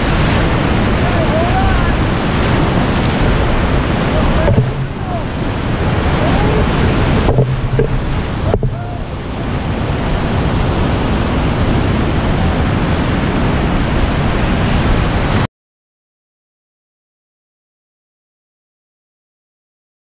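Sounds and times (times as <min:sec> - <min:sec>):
waves breaking around raft: 0:00.0 - 0:15.5
whitewater rushing: 0:00.0 - 0:15.5.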